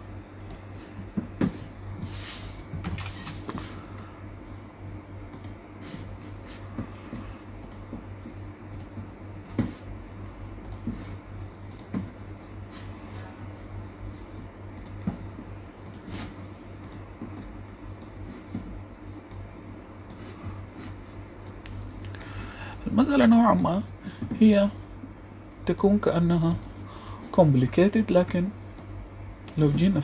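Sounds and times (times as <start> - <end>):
low steady hum: 0.0 - 30.0
mouse and key clicks: 11.6 - 11.9.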